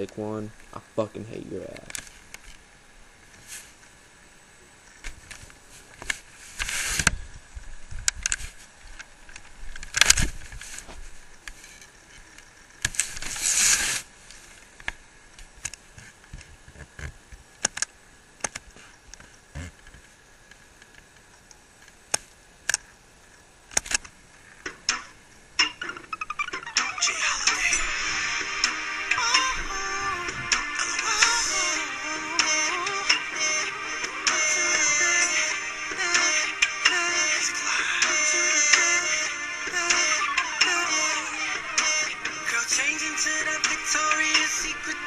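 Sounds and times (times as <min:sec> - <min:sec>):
loud rustling bursts: 0:12.9 - 0:14.7.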